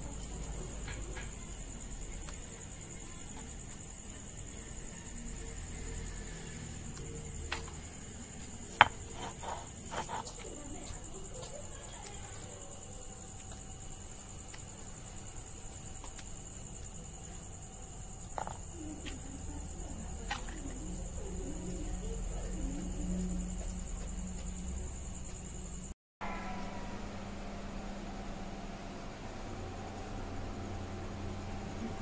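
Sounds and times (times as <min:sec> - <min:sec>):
crickets chirping: 0:00.0 - 0:32.0
stone roller knocking on stone: 0:08.8 - 0:10.3, 0:18.4 - 0:18.7.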